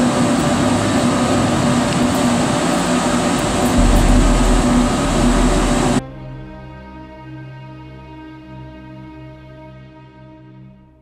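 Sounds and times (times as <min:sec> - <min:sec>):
pellet burner blower fan humming: 0:00.0 - 0:06.3
deep rumble: 0:00.1 - 0:08.0.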